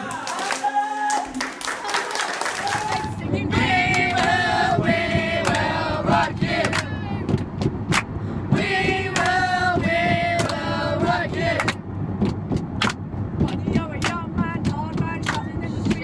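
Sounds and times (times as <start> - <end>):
hands clapping along: 0.0 - 3.1, 3.9 - 8.1, 9.1 - 16.0
minibus engine rumble: 1.3 - 16.0
group of voices singing: 2.7 - 7.2, 8.5 - 11.8.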